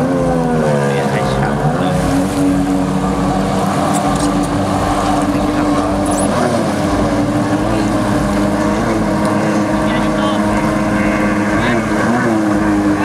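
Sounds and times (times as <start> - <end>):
jet ski engines droning: 0.0 - 13.0.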